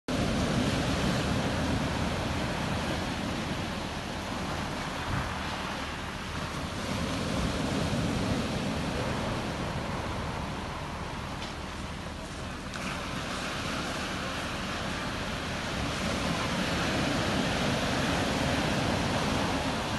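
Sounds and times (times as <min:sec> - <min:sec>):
surf breaking on beach: 0:00.1 - 0:19.9.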